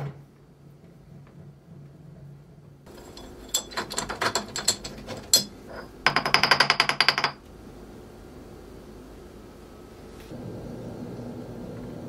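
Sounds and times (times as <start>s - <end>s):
ringing metallic rattle: 2.9s - 7.4s
steel parts knocking on metal: 2.9s - 7.4s.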